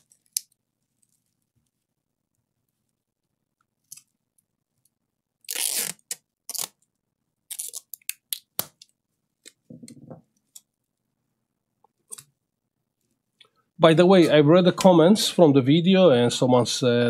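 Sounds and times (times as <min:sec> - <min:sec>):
tape crinkling and snapping: 0:00.0 - 0:09.7
tape ripping off roll: 0:05.4 - 0:06.8.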